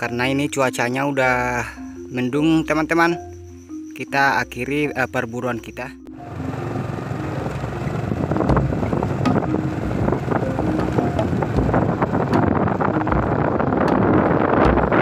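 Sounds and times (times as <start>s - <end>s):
moving vehicle rumble: 1.4s - 15.0s
wind buffeting microphone: 6.8s - 15.0s.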